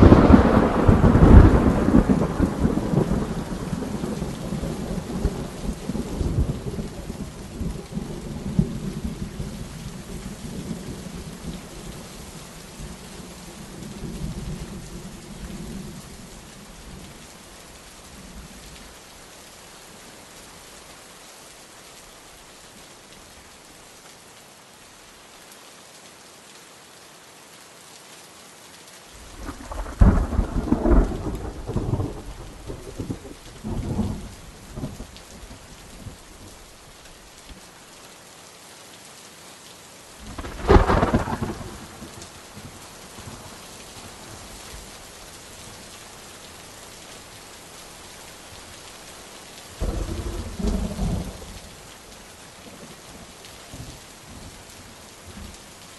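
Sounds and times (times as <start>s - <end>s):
thunder rolling: 0.0s - 4.1s, 29.3s - 34.2s, 40.3s - 42.0s
steady rain: 0.0s - 55.9s.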